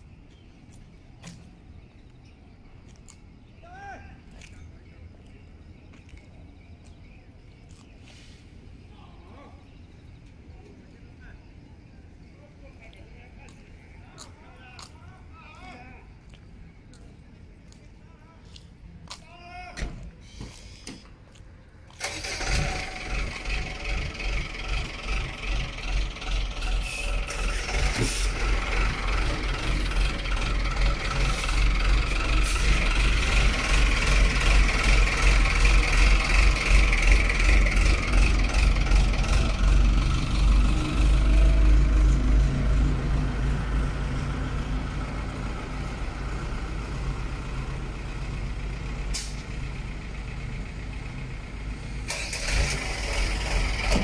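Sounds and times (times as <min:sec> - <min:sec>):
truck engine starting and running: 0:19.8 - 0:54.0.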